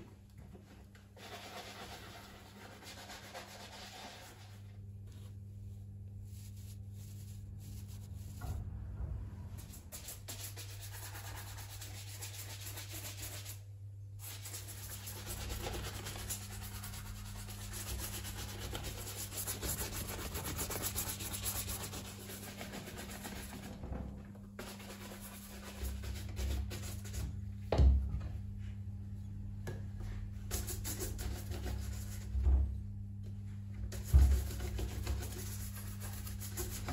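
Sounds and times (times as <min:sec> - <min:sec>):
brush scrubbing leather shoe: 0:01.2 - 0:04.6, 0:14.2 - 0:23.8, 0:24.6 - 0:27.2, 0:34.0 - 0:36.9.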